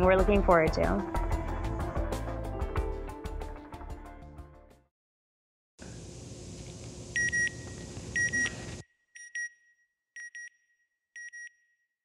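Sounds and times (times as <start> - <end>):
steady rumbling hiss: 5.8 - 7.2.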